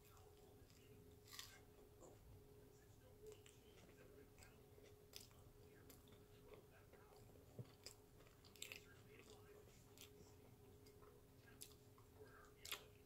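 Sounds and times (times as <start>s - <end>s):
close-mouthed chewing: 0.0s - 13.0s
faint steady hum: 0.0s - 13.0s.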